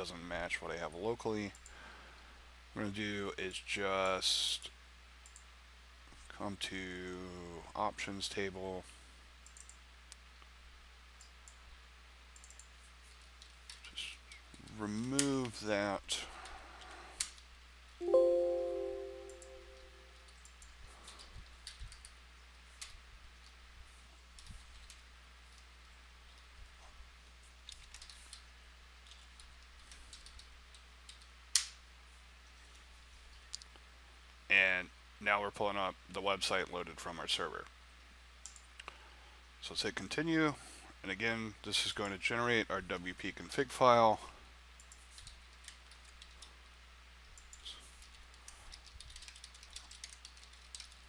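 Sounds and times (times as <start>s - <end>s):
faint low hum: 0.0s - 51.0s
keyboard typing: 18.0s - 20.6s, 29.0s - 30.5s, 47.5s - 51.0s.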